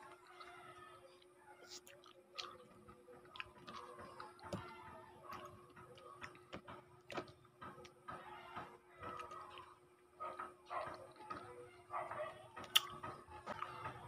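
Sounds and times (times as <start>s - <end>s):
quiet chewing: 0.0s - 14.0s.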